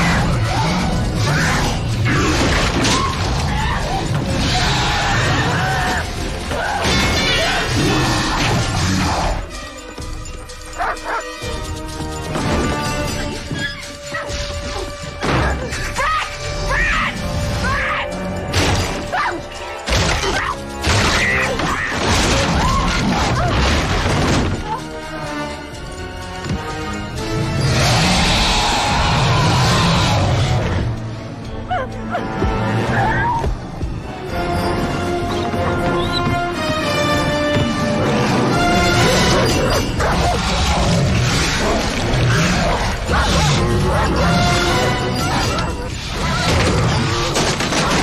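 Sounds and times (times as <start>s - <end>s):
dramatic horror film score: 0.0s - 48.0s
wailing cries: 27.6s - 30.6s
creature growling: 27.6s - 30.8s, 38.0s - 48.0s.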